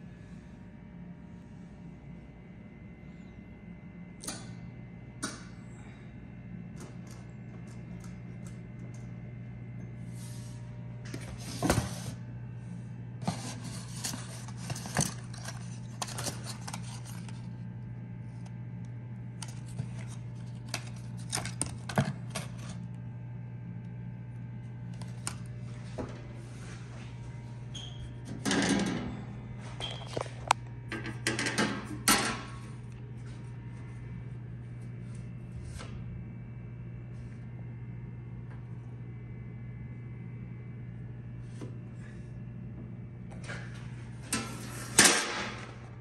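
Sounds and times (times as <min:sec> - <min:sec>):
cardboard and paper rustling: 0:13.2 - 0:17.5.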